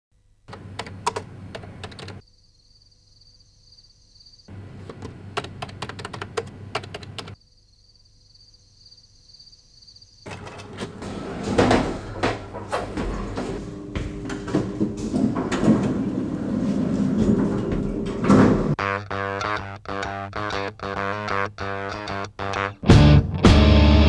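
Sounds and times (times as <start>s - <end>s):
fast typing on keyboard: 0.5s - 2.2s, 4.5s - 7.4s.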